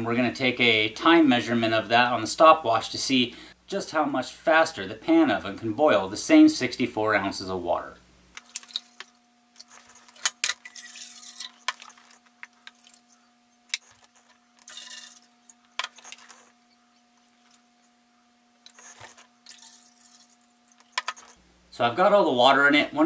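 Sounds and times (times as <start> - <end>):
water pouring: 8.4 - 13.3, 14.6 - 16.3, 18.7 - 21.0.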